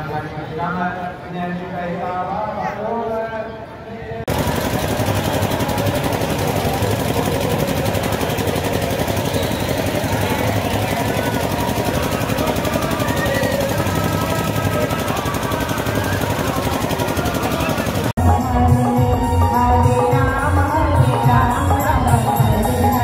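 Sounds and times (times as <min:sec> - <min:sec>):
faint voices: 0:00.0 - 0:19.0
machinery rattling: 0:04.3 - 0:18.1.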